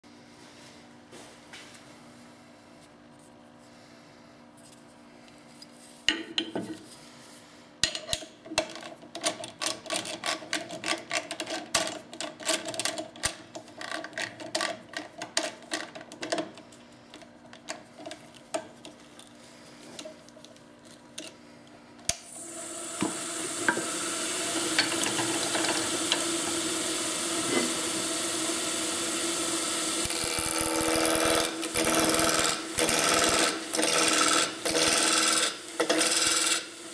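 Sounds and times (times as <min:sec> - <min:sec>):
lathe motor hum: 0:22.3 - 0:36.9
turning tool cutting wood: 0:22.4 - 0:36.9.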